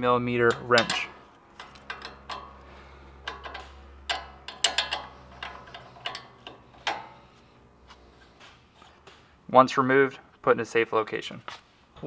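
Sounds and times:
wrench clicking: 0.5 - 7.2.

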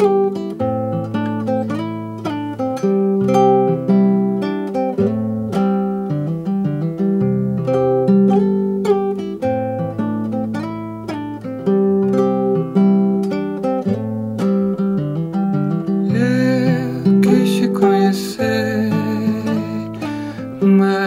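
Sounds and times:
acoustic guitar plucking: 0.0 - 21.0.

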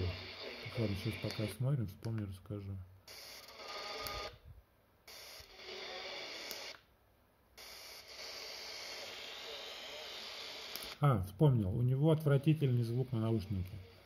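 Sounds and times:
radio static: 0.0 - 1.6
faint radio station signals: 0.0 - 4.3, 5.1 - 6.8, 8.1 - 14.0.

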